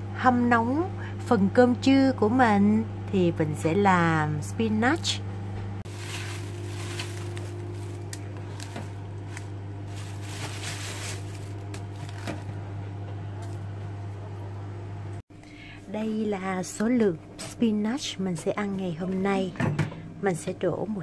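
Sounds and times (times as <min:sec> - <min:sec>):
microwave oven humming: 0:00.0 - 0:21.0
spinach leaves rustling in bowl: 0:05.8 - 0:12.4.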